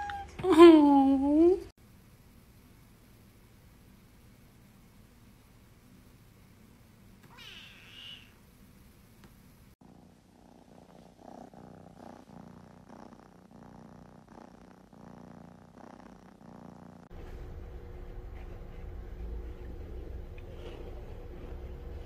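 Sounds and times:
kitten purring: 9.8s - 22.0s.

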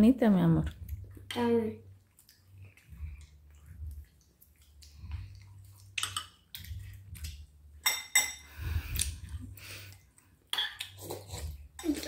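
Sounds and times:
spoons clinking against bowls: 5.9s - 6.8s, 7.8s - 8.6s, 10.5s - 12.0s.

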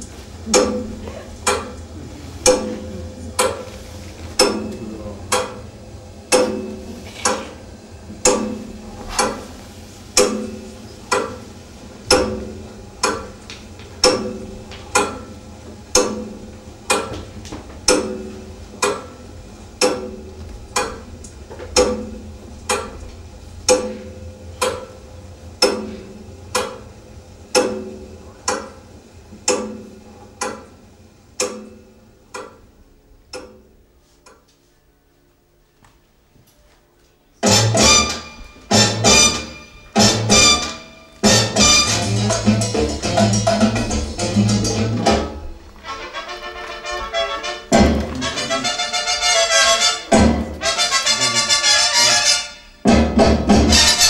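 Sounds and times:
clock ticking: 4.4s - 5.6s, 8.2s - 9.4s, 12.1s - 15.3s, 15.9s - 17.2s, 17.8s - 19.2s, 19.8s - 21.1s, 21.7s - 23.0s, 27.5s - 28.8s, 29.4s - 30.8s, 31.4s - 32.7s, 33.3s - 33.7s.

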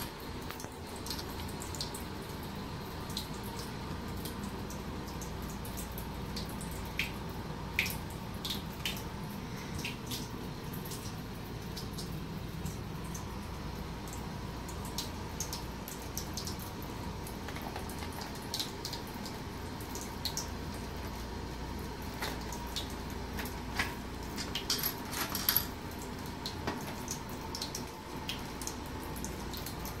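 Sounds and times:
water running from faucet: 0.0s - 30.0s.

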